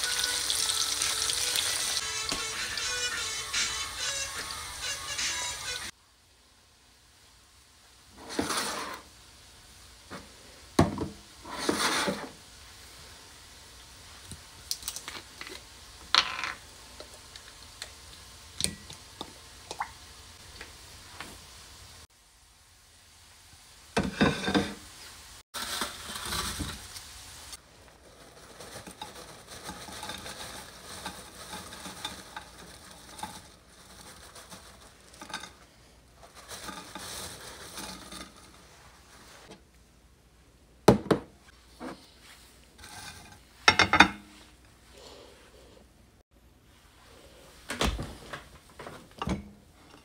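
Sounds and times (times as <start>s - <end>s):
dishes clattering: 24.0s - 24.8s, 42.8s - 44.3s
food rustling on a plate: 25.6s - 27.1s, 27.7s - 39.6s, 41.7s - 43.7s
dishes knocking on table: 40.9s - 41.3s.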